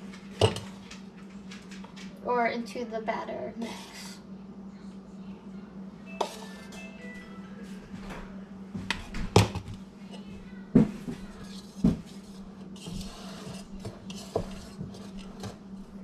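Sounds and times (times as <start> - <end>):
steady low hum: 0.0 - 16.0
spoon scraping while stirring: 6.2 - 6.9, 11.2 - 16.0.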